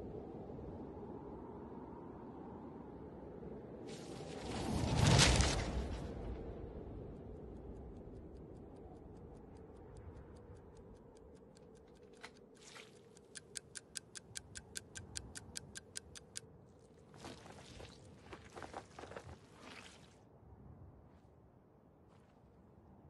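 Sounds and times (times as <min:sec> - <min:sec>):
clock-like ticking: 0:07.1 - 0:16.4
boot squelching in wet mud: 0:12.2 - 0:13.2, 0:17.1 - 0:20.2.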